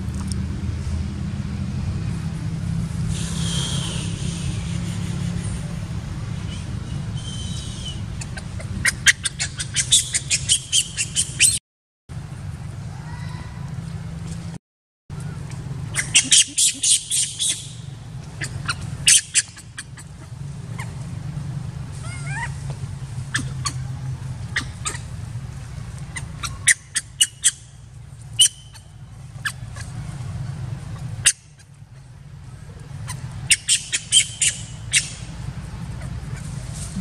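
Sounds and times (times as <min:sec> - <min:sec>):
monkey squealing: 0:08.2 - 0:11.6, 0:15.9 - 0:17.8, 0:18.4 - 0:21.0, 0:22.0 - 0:22.6, 0:23.2 - 0:25.1, 0:26.1 - 0:27.7, 0:28.4 - 0:30.1, 0:32.9 - 0:35.3, 0:35.9 - 0:37.0.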